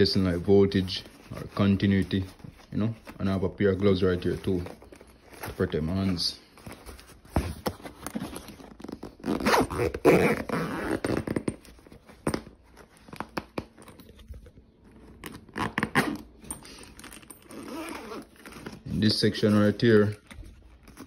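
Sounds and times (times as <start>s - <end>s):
zipper: 8.1s - 11.7s, 15.2s - 18.9s.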